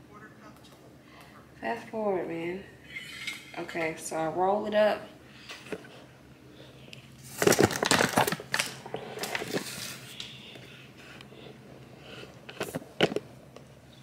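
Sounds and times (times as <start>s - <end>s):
dough handling crackles: 7.2s - 11.2s.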